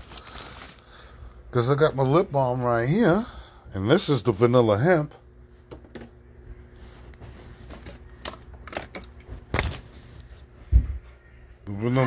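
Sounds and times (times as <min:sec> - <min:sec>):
clicks and rustles of handling: 0:07.1 - 0:10.5.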